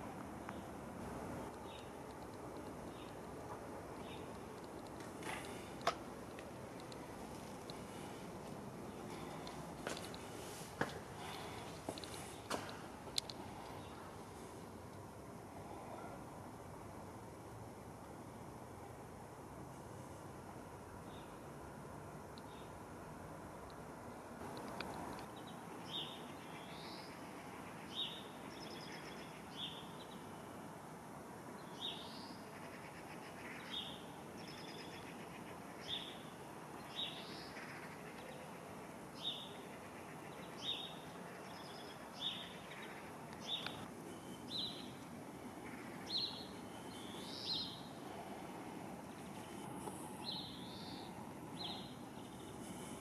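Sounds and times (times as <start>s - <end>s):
faint bird chirping: 1.5s - 5.9s, 13.2s - 14.8s, 24.6s - 30.7s, 31.5s - 53.0s.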